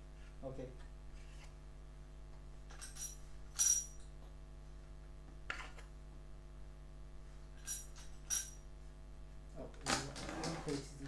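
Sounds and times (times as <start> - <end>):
small metal parts clinking: 2.7 - 4.1, 7.6 - 8.6.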